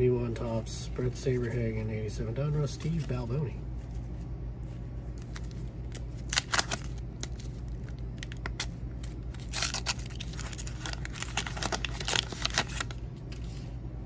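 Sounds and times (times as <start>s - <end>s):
wax paper wrapper crackling and tearing: 5.0s - 13.4s.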